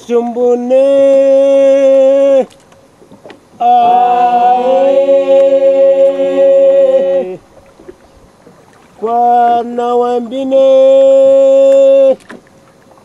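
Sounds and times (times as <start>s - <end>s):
person singing chant-like song: 3.6s - 7.4s.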